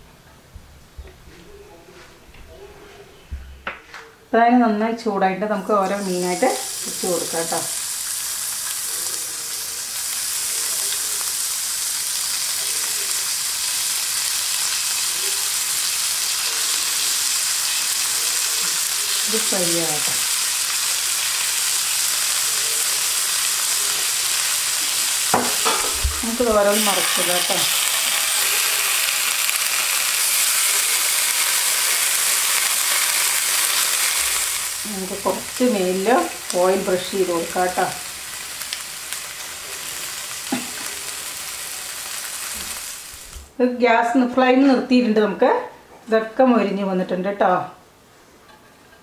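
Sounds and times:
fish sizzling in oil: 5.7s - 43.5s.

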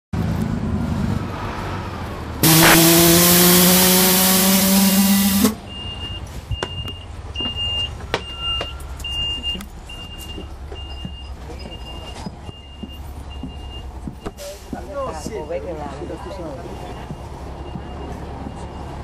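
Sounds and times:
bus engine rumble: 0.2s - 19.0s
loud hiss with low tone: 2.4s - 5.6s.

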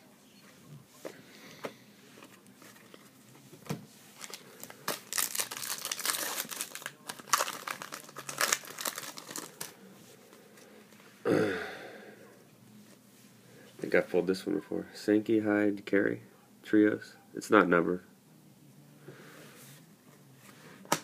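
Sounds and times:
foil wrapper crinkling and tearing: 4.2s - 9.8s.

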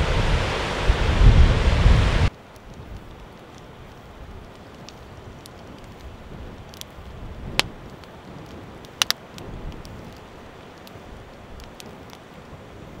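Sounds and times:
fire popping: 0.0s - 13.0s
wood fire crackling: 0.0s - 13.0s.

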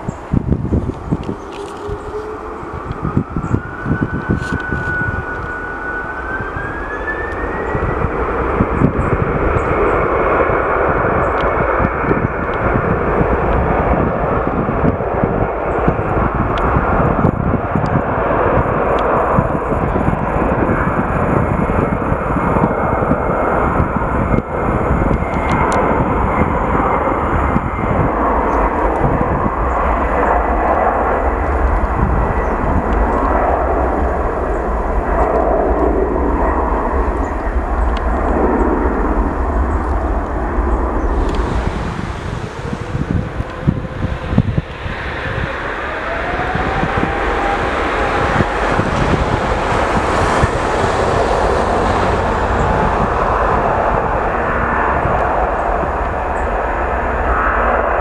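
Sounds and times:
jet engines roaring with whine: 0.0s - 58.0s.

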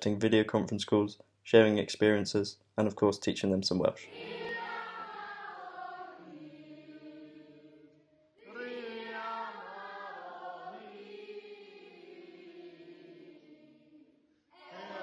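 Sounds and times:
children singing in chorus: 4.1s - 13.9s, 14.6s - 15.0s.

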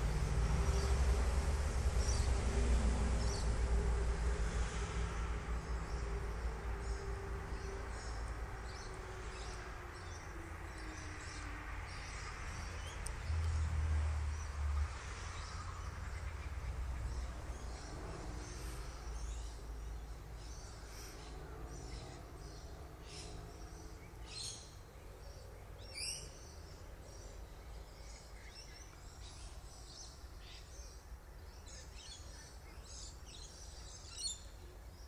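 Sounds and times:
constant low rumble: 0.0s - 13.7s
small birds chirping: 14.3s - 35.0s.

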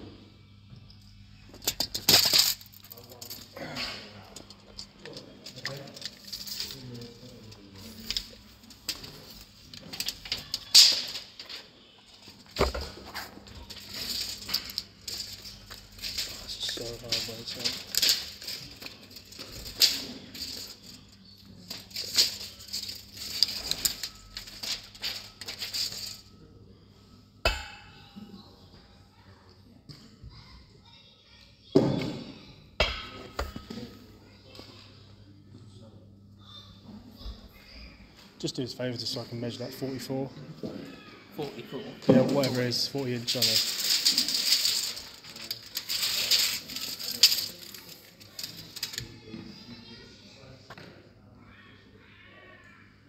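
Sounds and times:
handling noise rustling and scraping: 4.3s - 26.4s, 39.0s - 49.5s
tape measure clicking and rattling: 42.4s - 49.1s.

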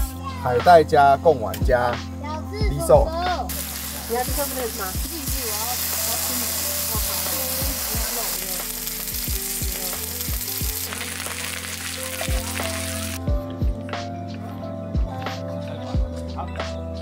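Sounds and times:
background music with a beat: 0.0s - 17.0s
meat sizzling on a griddle pan: 3.5s - 13.2s
tongs turning meat: 3.8s - 13.2s.

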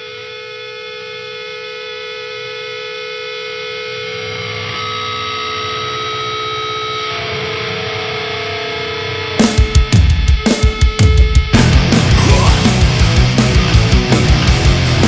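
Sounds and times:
heavy metal band playing: 9.3s - 15.0s.

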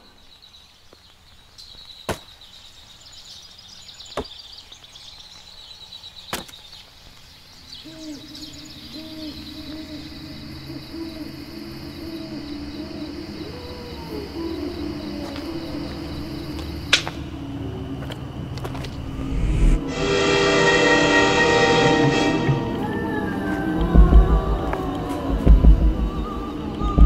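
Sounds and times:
insects chirring: 0.0s - 27.0s
low wavering drone: 8.8s - 27.0s.

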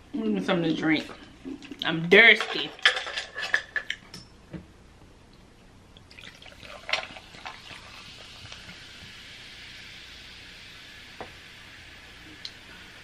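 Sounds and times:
water pouring into glass: 6.1s - 8.5s.

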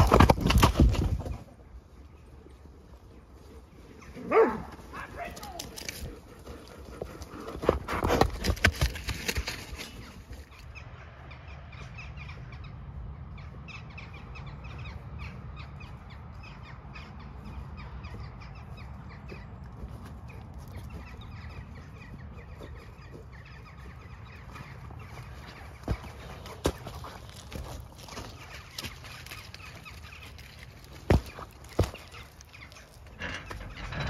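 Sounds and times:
pony hooves knocking and scuffing: 0.0s - 10.7s, 14.3s - 34.0s
birds calling: 0.0s - 34.0s.

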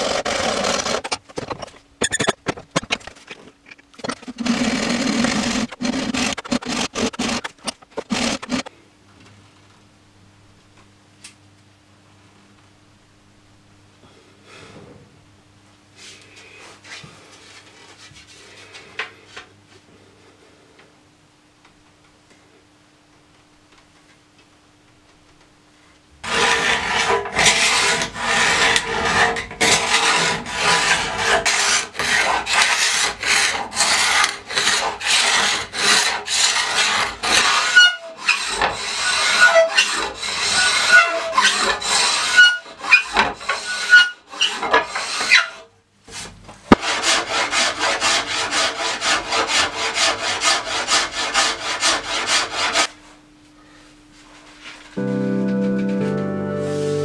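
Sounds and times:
rasp scraping wood: 0.0s - 8.7s, 26.2s - 45.6s, 46.7s - 52.9s.

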